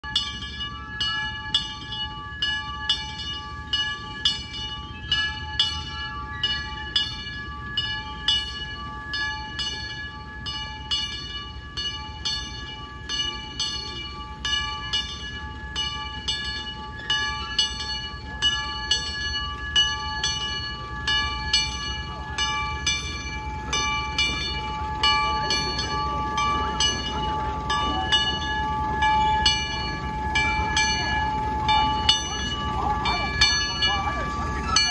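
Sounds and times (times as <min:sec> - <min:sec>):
steam locomotive chuffing: 0:00.2 - 0:34.9
steady whistling tone: 0:22.2 - 0:34.9.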